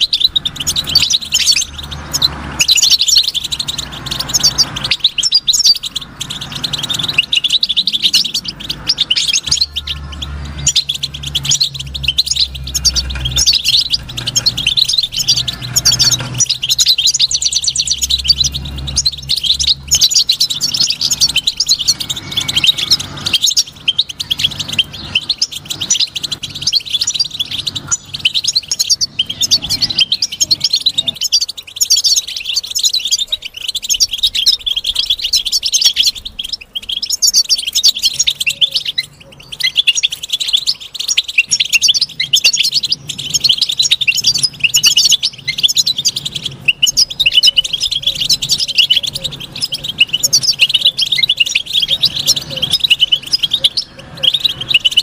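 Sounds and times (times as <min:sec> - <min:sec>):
goldfinch twittering song: 0:00.0 - 0:55.0.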